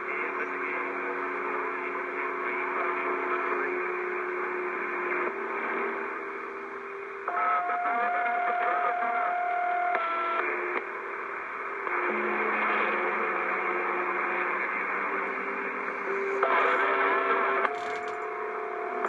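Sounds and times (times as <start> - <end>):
whistling radio tones: 0.0 - 4.2, 7.3 - 10.7, 11.8 - 19.0
radio static hiss: 0.0 - 19.0.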